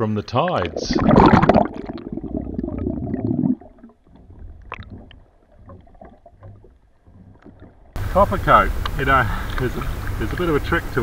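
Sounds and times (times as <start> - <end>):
faint underwater wash: 0.3 - 11.0
underwater gurgling and bubbling: 0.5 - 8.0.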